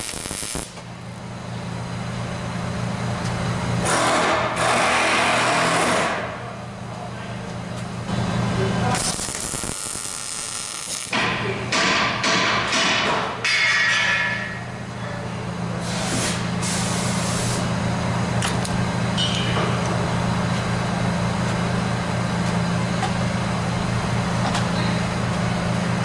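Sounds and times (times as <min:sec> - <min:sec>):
welder arc crackling: 0:00.0 - 0:00.8, 0:09.0 - 0:11.2
steady low hum: 0:14.0 - 0:26.0.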